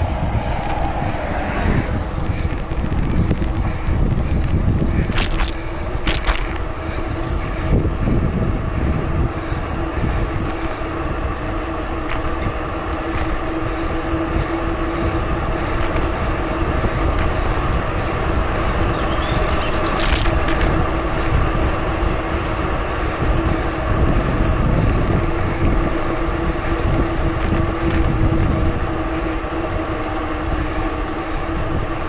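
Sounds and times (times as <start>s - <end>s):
steady hum: 0.0s - 32.0s
wind and tyre rumble: 0.0s - 32.0s
sharp clicks: 19.9s - 20.7s.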